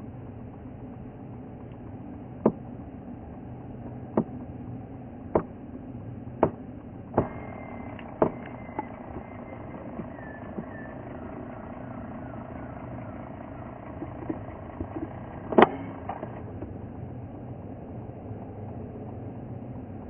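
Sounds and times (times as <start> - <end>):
low engine hum: 0.0 - 20.0
sharp knocks: 2.4 - 2.6, 5.3 - 5.6, 6.4 - 6.6, 8.1 - 8.9
faint high whistle: 7.3 - 11.0.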